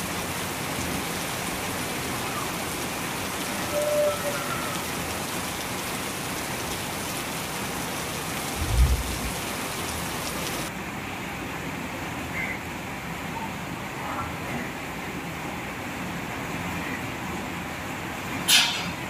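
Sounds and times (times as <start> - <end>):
heavy rain falling: 0.0 - 12.2.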